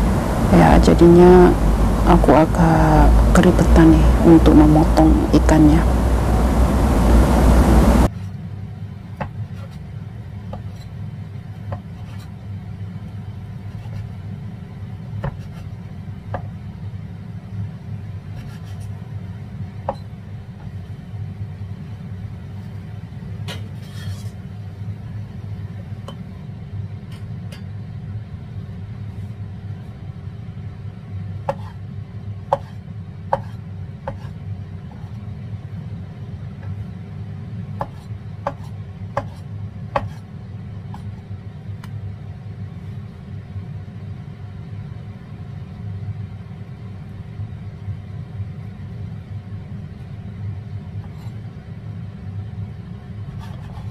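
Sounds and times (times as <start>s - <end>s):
steady low rumble: 0.0s - 8.1s.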